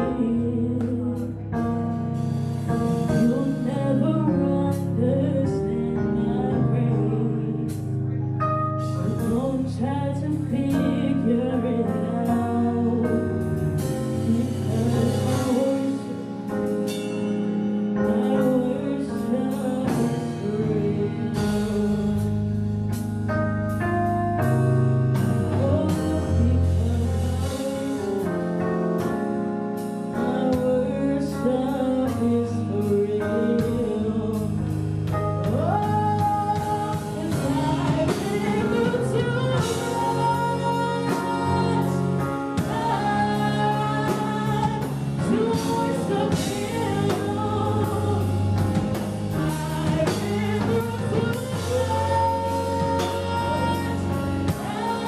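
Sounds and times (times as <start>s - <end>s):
band playing: 7.7s - 30.8s, 32.1s - 55.0s
steady drum beat: 35.0s - 55.0s
voices singing gospel: 35.6s - 55.0s.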